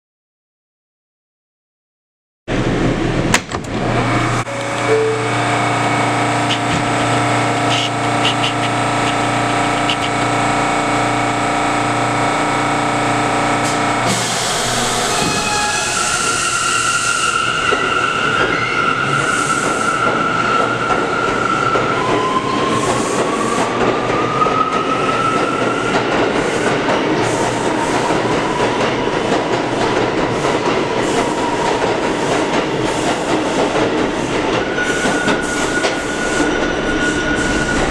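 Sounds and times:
train electrical hum: 2.6 - 15.7
traction motors whining: 3.7 - 16.4
wheel and track noise: 5.8 - 12.3.

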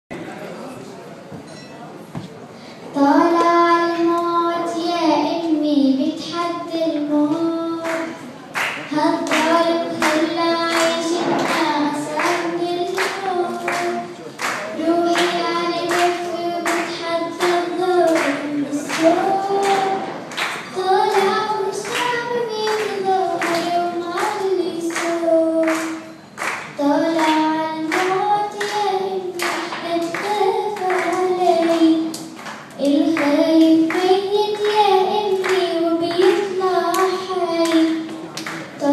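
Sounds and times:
rhythmic hand clapping: 6.2 - 38.9
girl singing long notes: 26.8 - 32.2.

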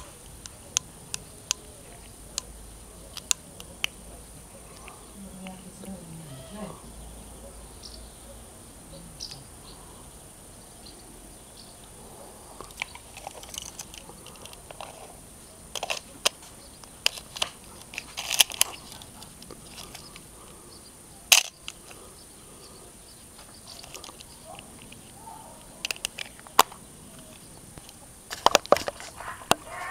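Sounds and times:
camera lens clicks and knocks: 15.7 - 19.0, 25.8 - 29.6.

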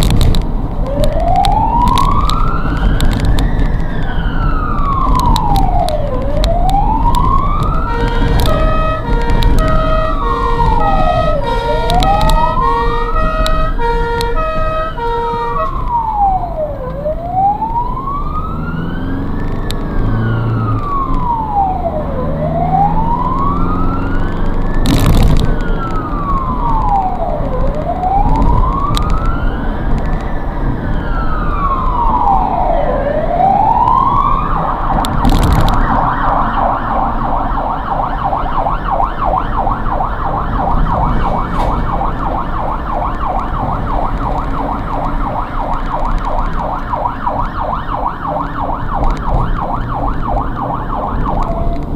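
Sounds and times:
ambulance siren wailing: 0.0 - 51.9
fast siren yelp: 0.8 - 51.9
stepped siren tone: 0.8 - 51.9
engine revving: 18.2 - 24.9
sharp cracks: 24.2 - 30.3, 34.6 - 51.9.

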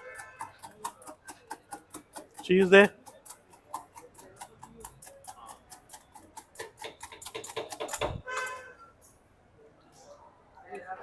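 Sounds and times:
whisk clicking against metal pan: 0.0 - 8.1.

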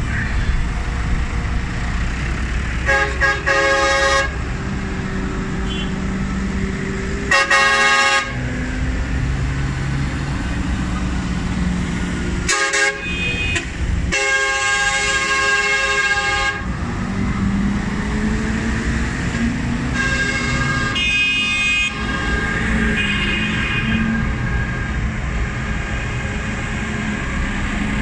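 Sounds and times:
tractor diesel engines passing: 0.0 - 28.0
horn blasts: 2.8 - 4.4, 5.6 - 6.0, 7.3 - 8.4, 12.5 - 16.7, 19.9 - 24.9.

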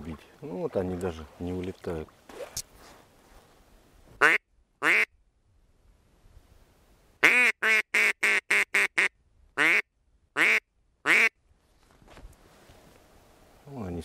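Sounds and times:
duck call quacks: 4.2 - 5.1, 7.2 - 11.4.

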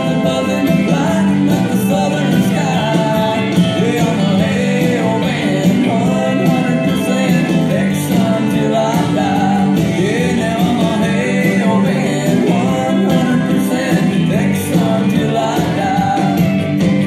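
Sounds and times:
backing band: 0.0 - 17.0
person singing: 0.0 - 17.0.

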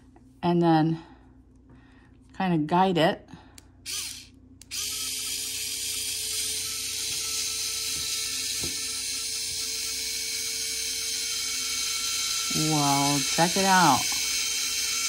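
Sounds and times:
electric screwdriver motor running: 3.8 - 15.0.

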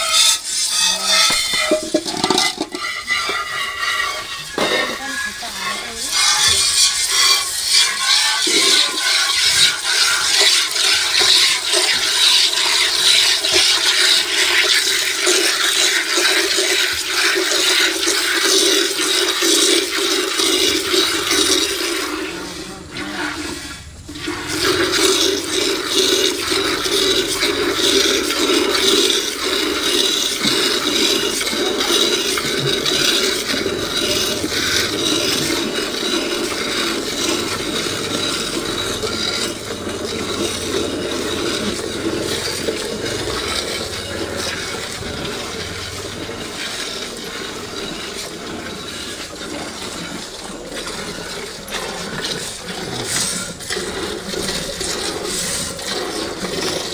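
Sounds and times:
milk squirting into a metal pail: 0.0 - 56.9.

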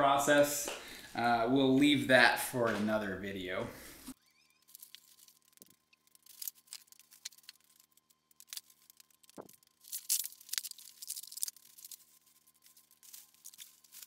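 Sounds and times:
plastic wrapping crinkling: 4.6 - 14.0.

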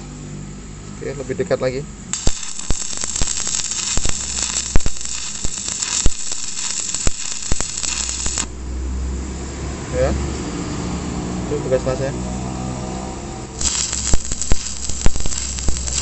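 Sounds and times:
welding arc crackling: 2.1 - 8.7, 13.5 - 16.0
sharp pops of spatter: 2.2 - 8.5, 13.6 - 16.0.

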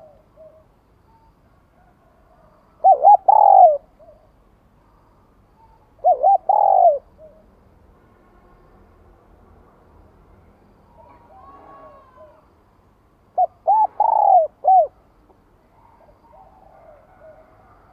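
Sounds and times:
dove cooing: 0.0 - 0.7, 1.8 - 4.3, 6.0 - 7.5, 11.0 - 12.4, 13.4 - 15.1, 15.7 - 17.9.

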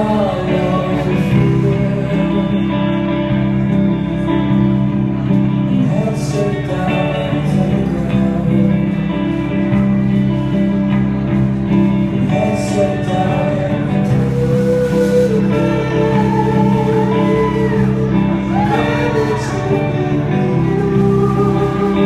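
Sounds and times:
bass guitar: 0.0 - 22.0
electric guitars: 0.0 - 22.0
drum kit: 9.2 - 22.0.

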